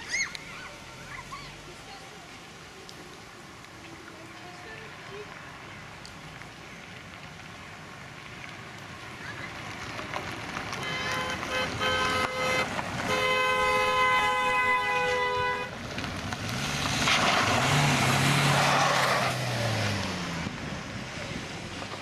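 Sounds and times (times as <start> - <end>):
car horns honking: 10.8 - 15.7
car driving past: 15.1 - 22.0.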